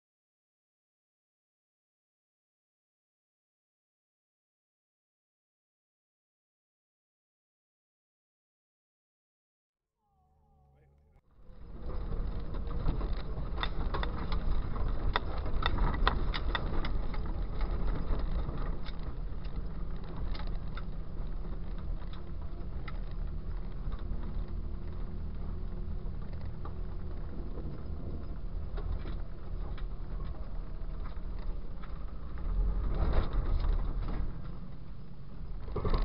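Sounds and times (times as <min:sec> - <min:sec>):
vehicle engine rumble: 0:10.2 - 0:36.0
body and suspension rattles: 0:11.4 - 0:36.0.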